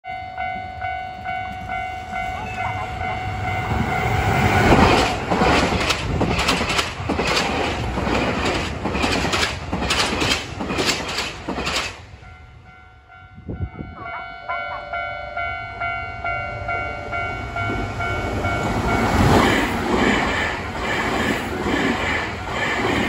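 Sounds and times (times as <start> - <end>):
level crossing bell ringing: 0.1 - 4.2, 12.3 - 19.0
train wheels clacking on rail joints: 1.5 - 12.1.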